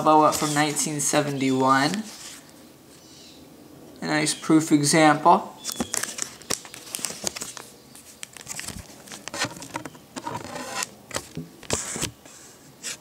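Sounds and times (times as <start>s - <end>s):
plastic sleeve crinkling: 5.6s - 12.1s.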